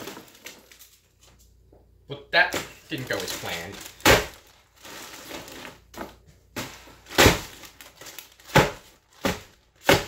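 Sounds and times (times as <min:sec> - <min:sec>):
dumbbell thudding on ice bag: 0:02.4 - 0:04.5, 0:05.3 - 0:10.0.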